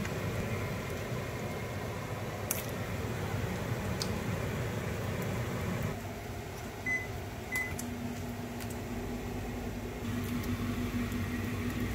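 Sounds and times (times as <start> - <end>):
appliance low hum: 0.0 - 11.9
appliance electronic beeps: 6.8 - 7.8.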